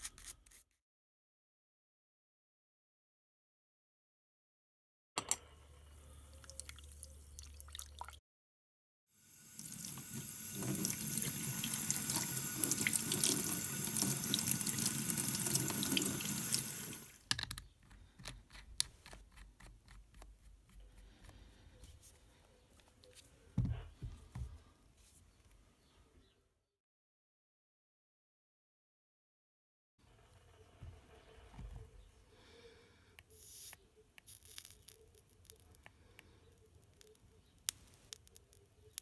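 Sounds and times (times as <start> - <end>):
tap water running into sink: 9.5 - 17.2.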